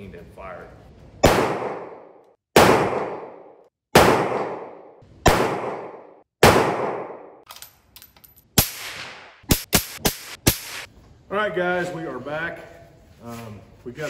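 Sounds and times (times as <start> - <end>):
rifle shots with echo: 1.2 - 7.4.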